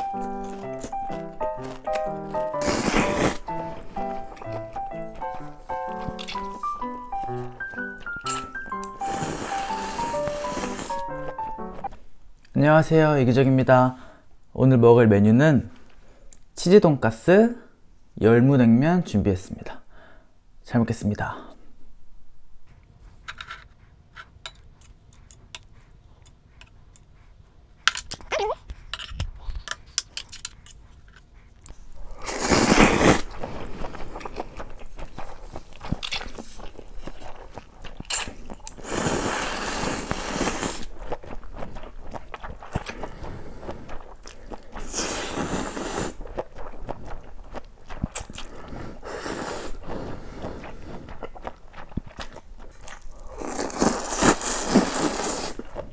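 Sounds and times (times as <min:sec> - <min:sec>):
loud noodle slurping: 0:00.0 - 0:11.8, 0:32.0 - 0:55.9
chewing and crunching: 0:00.0 - 0:12.6, 0:24.5 - 0:55.9
chopsticks clicking: 0:05.2 - 0:06.6.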